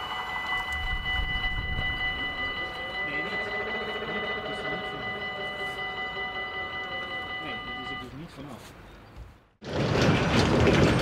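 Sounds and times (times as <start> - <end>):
low wavering barrier motor hum: 0.0 - 8.0
level crossing warning bell ringing: 0.0 - 8.6.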